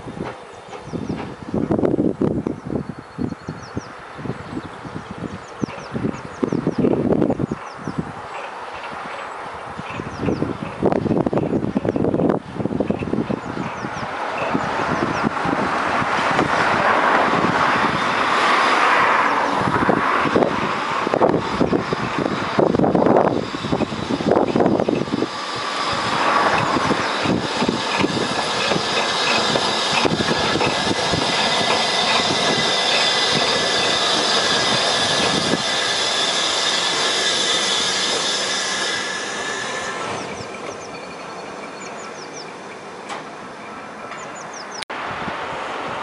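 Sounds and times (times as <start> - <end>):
steam locomotive exhaust beats: 8.4 - 40.9
steam hissing: 19.7 - 41.0.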